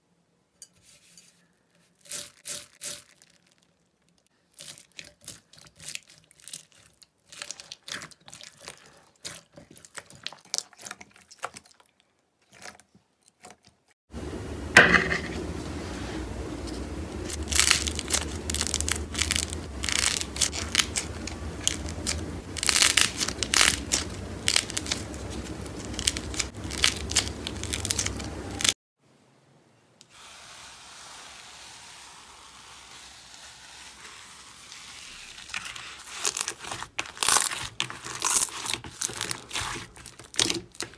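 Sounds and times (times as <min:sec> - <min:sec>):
hands squishing slime: 0:04.5 - 0:11.9, 0:17.3 - 0:28.7, 0:35.5 - 0:40.9
low steady hum: 0:14.1 - 0:30.0
soft hiss of stirred slime: 0:30.0 - 0:36.9.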